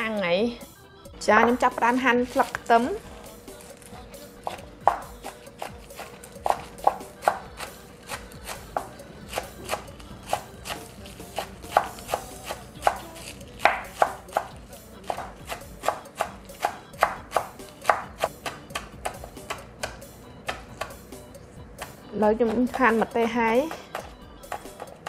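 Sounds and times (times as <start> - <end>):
knife chopping on wooden board: 4.4 - 21.0, 23.6 - 25.0.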